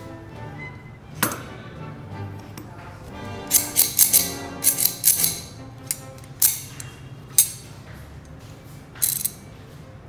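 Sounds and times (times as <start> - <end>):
metal pliers clicking: 3.5 - 7.7, 9.0 - 9.4.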